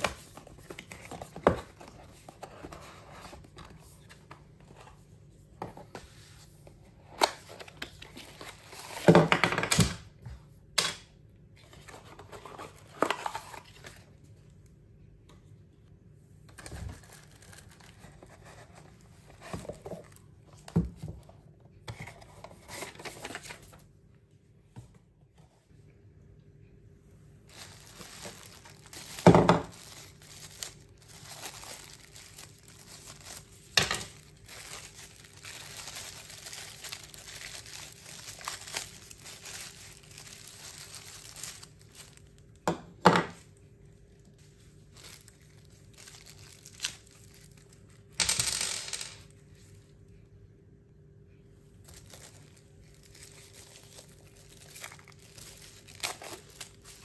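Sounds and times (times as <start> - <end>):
plastic bags crinkling: 16.7 - 20.2, 27.5 - 42.6, 44.8 - 48.0, 51.8 - 57.0.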